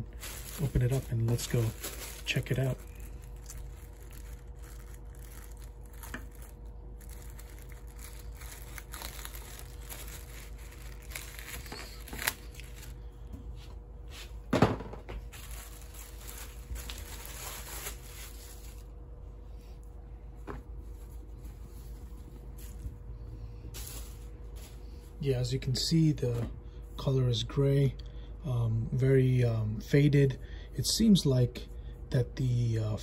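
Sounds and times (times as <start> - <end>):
plastic bag crinkling: 0.0 - 13.1, 15.2 - 18.9, 23.7 - 24.9.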